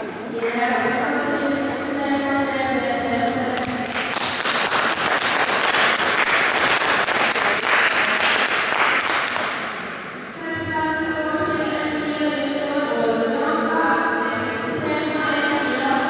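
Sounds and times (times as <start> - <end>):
audience applauding: 3.6 - 9.8.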